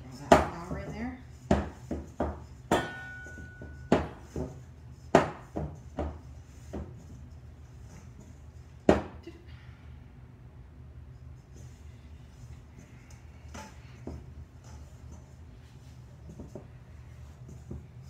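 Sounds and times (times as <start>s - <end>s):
dough thumping against metal bowl: 0.2s - 7.0s, 8.8s - 9.2s
metal bowl ringing: 2.5s - 4.3s.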